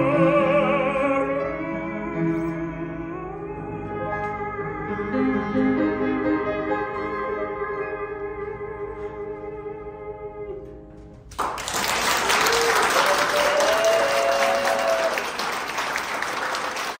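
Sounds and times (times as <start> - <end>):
audience applause: 11.3 - 17.0
person cheering: 12.3 - 15.4.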